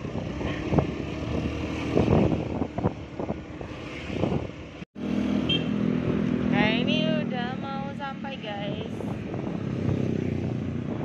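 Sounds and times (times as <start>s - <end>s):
wind noise on microphone: 0.0s - 4.8s, 8.4s - 11.0s.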